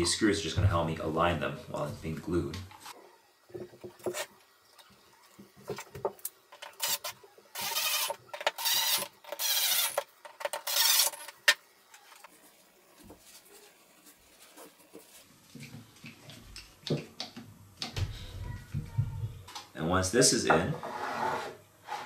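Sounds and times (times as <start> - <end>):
impact driver driving screws: 6.8 - 11.3.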